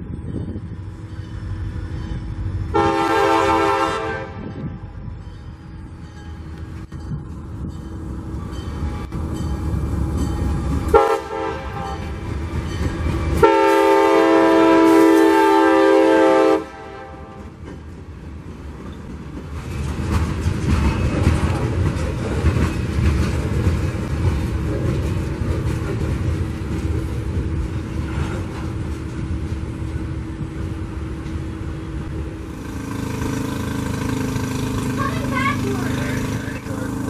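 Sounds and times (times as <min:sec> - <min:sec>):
locomotive engine rumbling: 0:00.0 - 0:37.0
train air horn blasts: 0:02.7 - 0:04.6, 0:10.9 - 0:12.2, 0:13.4 - 0:17.5
freight cars rolling by: 0:16.6 - 0:37.0.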